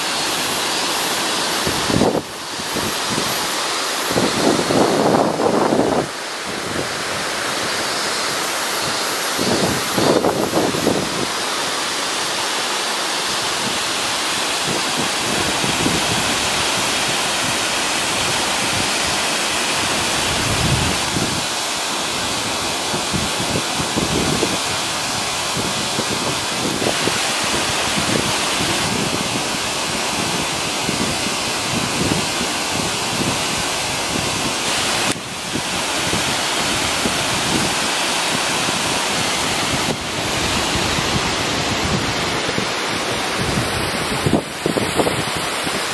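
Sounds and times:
wind rumble on microphone: 0.0 - 7.4, 8.3 - 11.3, 14.6 - 19.2, 19.8 - 21.5, 22.1 - 45.9
waterfall rushing: 0.0 - 45.9.

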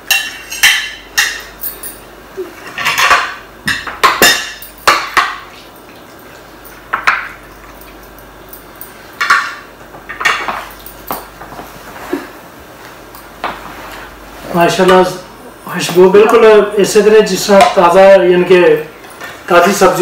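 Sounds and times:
metal spoons clinking on plates: 0.1 - 5.4.

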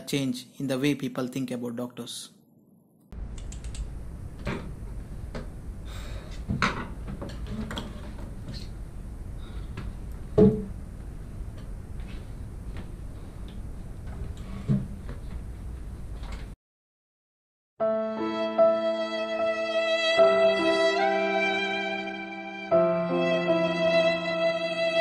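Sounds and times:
room hum and hiss: 3.2 - 16.6.

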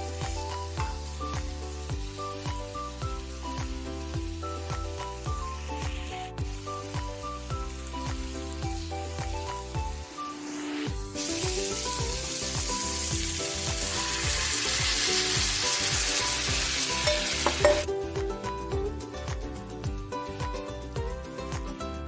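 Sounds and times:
food sizzling in oil: 0.0 - 17.9
background music: 0.0 - 22.0
water poured into hot pan: 10.1 - 17.9.

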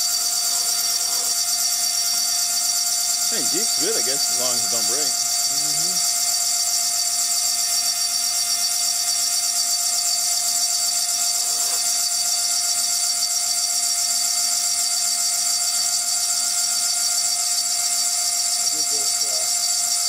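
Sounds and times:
cutter engraving glass hiss: 0.0 - 13.4
milling spindle whining: 0.0 - 20.0.

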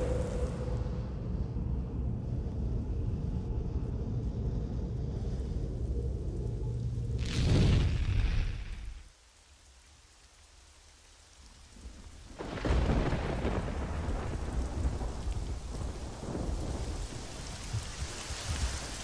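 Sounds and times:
thunder rumbling: 0.0 - 2.0, 12.4 - 19.0
steady rain: 0.0 - 19.0.

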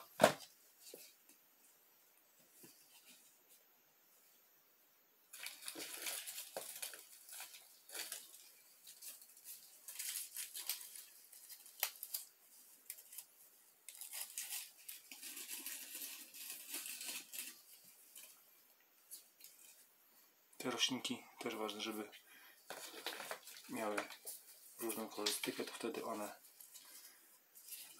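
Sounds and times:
plastic plants rustling: 5.3 - 19.9, 20.6 - 27.9.

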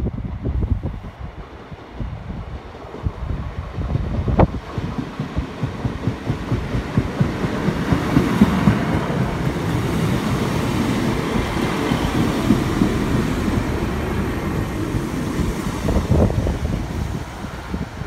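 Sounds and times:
train rumble: 0.0 - 18.0
train wheels clattering on rails: 3.7 - 18.0.

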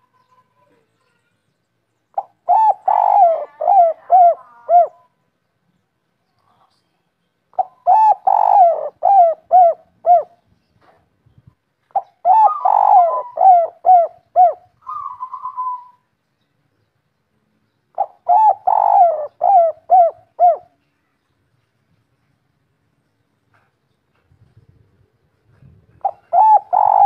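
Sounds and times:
dove cooing: 2.2 - 5.1, 7.5 - 10.4, 11.9 - 16.0, 18.0 - 20.8, 25.5 - 27.0.

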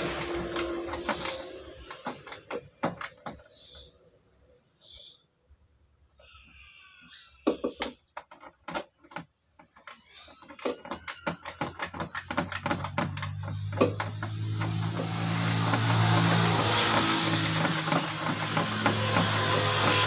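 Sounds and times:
vehicle engine hum: 0.0 - 4.6, 11.4 - 20.0.

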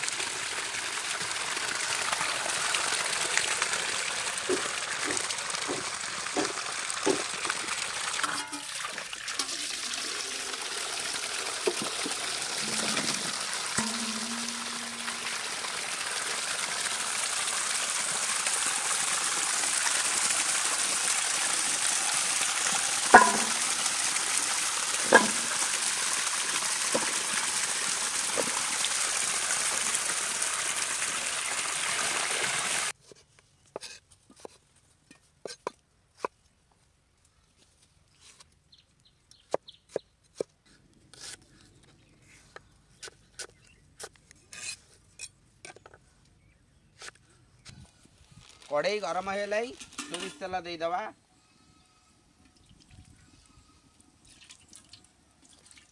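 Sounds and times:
water gushing into steel bowl: 0.0 - 33.0
sharp metal clanks: 13.8 - 15.3, 23.2 - 23.6.

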